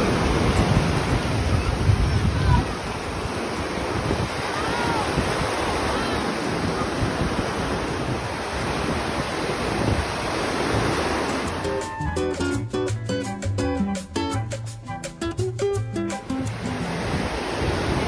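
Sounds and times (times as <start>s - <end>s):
wind rumbling on microphone: 0.0s - 11.6s, 16.5s - 18.0s
surf breaking on sand: 0.0s - 11.9s, 16.2s - 18.0s.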